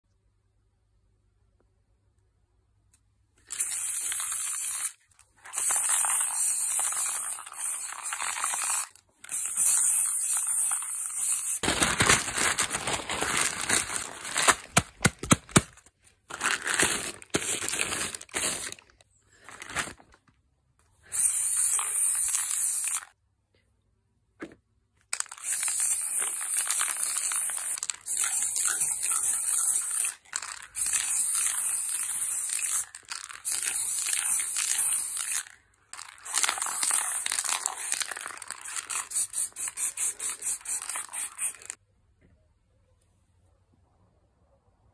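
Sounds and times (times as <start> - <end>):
spray paint can hissing: 3.4 - 11.7, 21.1 - 23.2, 25.2 - 41.8
newspaper crinkling: 10.7 - 20.3, 25.2 - 39.7.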